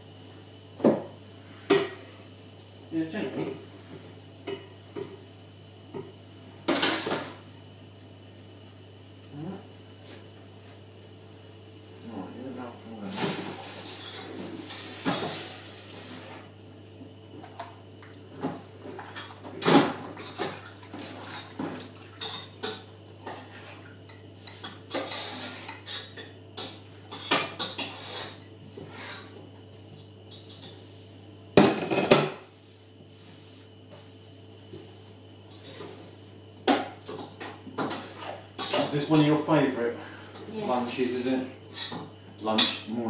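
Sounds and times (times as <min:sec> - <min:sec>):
pots and pans clattering: 0:06.7 - 0:07.4, 0:13.1 - 0:15.6, 0:18.3 - 0:29.2, 0:31.6 - 0:32.4, 0:36.6 - 0:39.4.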